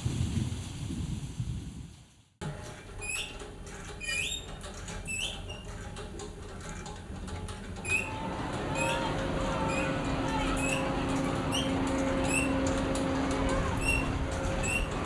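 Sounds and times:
low steady rumble: 0:02.4 - 0:15.0
short squeaky chirps: 0:03.0 - 0:03.4.

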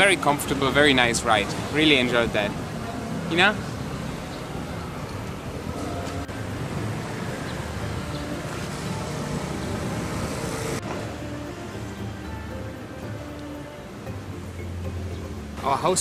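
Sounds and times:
street traffic noise: 0:00.0 - 0:16.0.

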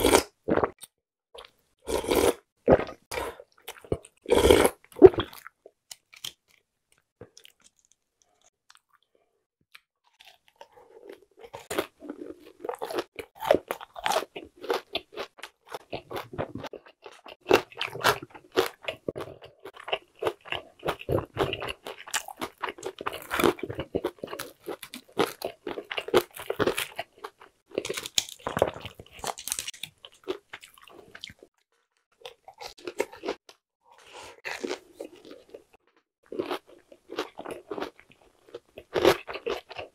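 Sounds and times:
crunchy chewing: 0:09.7 - 0:31.6, 0:32.2 - 0:39.9.

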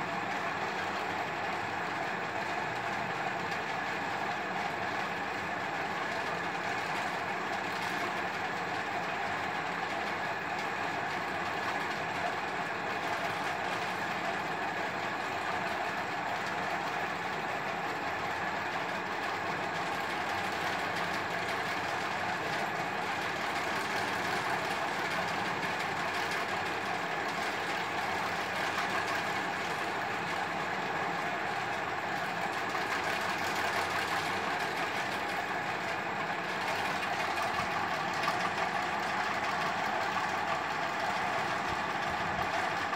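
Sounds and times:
steady mechanical hum: 0:00.0 - 0:42.9.

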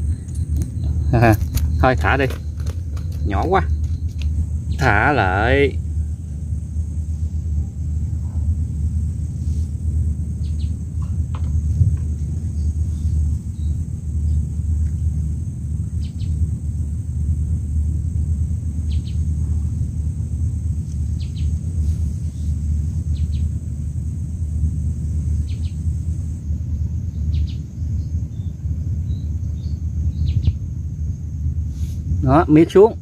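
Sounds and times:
faint bird chirps: 0:00.0 - 0:05.3, 0:10.4 - 0:10.8, 0:12.4 - 0:15.1, 0:16.0 - 0:16.5, 0:18.8 - 0:19.7, 0:21.1 - 0:23.6, 0:25.2 - 0:25.9, 0:27.1 - 0:30.6
low rumble: 0:00.0 - 0:33.0.

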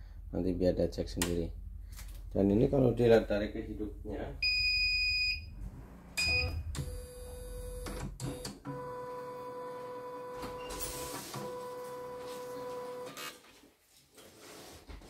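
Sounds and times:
high machine tone: 0:04.4 - 0:13.1
short electronic beep: 0:06.2 - 0:07.8.

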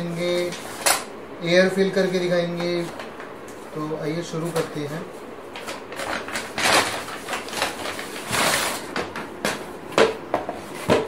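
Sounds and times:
paper tearing and rustling: 0:05.5 - 0:09.0.

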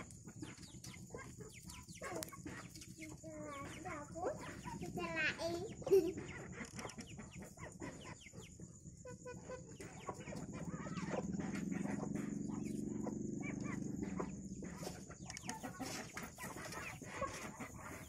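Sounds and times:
chickens clucking: 0:00.0 - 0:18.0.

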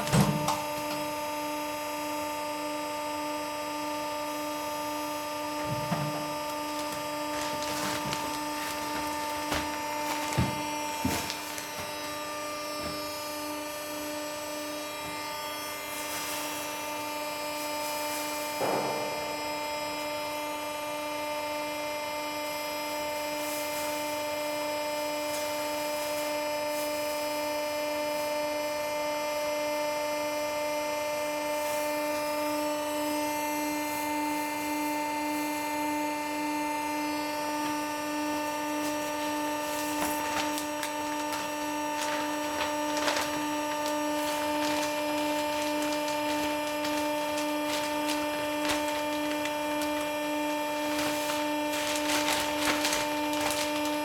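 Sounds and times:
straw rustling: 0:06.7 - 0:12.1, 0:39.8 - 0:50.2, 0:50.8 - 0:54.0
brief thump: 0:18.6 - 0:19.3.

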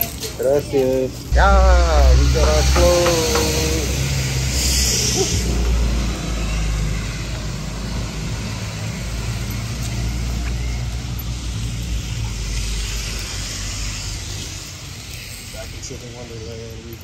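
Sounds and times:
street traffic rumble and hiss: 0:00.0 - 0:17.0.

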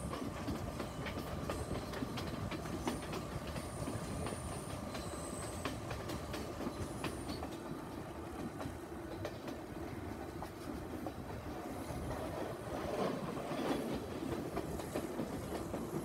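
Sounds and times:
train rumbling: 0:00.0 - 0:16.0
wheels clicking over rail joints: 0:00.0 - 0:16.0.

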